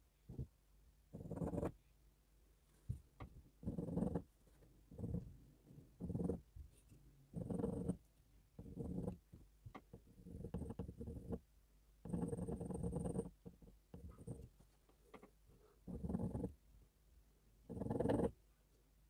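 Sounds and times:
pencil lead scratching on board: 1.2 - 1.8, 3.6 - 4.3, 4.9 - 8.0, 8.6 - 9.3, 9.9 - 11.4, 12.1 - 14.8, 15.8 - 16.6, 17.7 - 18.4.

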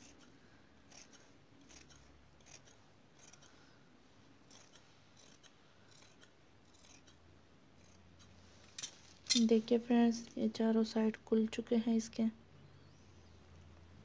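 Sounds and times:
shears snipping fabric: 0.0 - 3.6, 4.4 - 7.2, 7.8 - 9.5.

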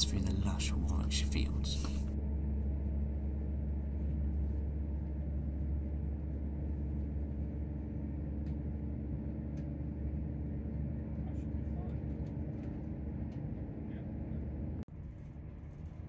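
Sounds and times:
diesel train engine drone: 0.0 - 3.8.

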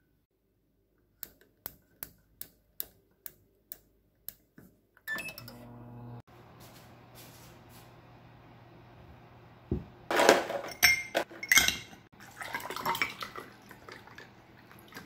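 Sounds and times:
oven humming: 5.1 - 10.1.

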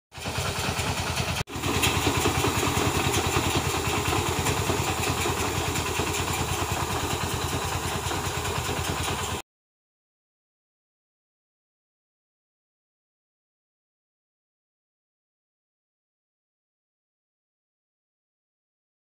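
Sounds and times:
tractor engine running: 0.1 - 9.4.

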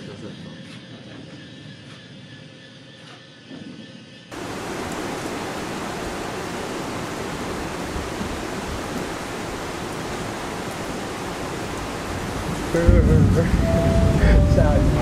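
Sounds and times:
rain on wooden deck: 4.3 - 15.0.

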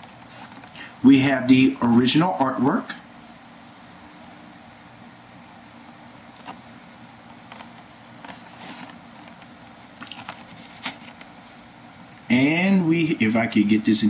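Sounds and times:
faint steady hiss: 0.0 - 14.0
handling clicks and rustles: 5.8 - 11.5.

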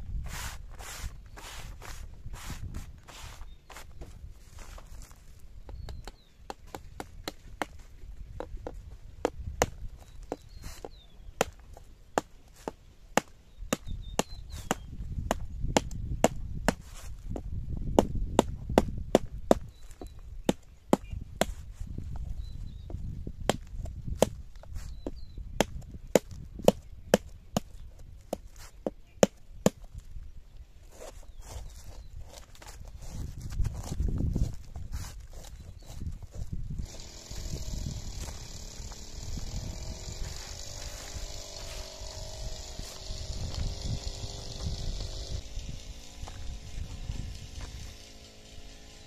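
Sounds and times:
knife chopping squash: 23.5 - 29.8.

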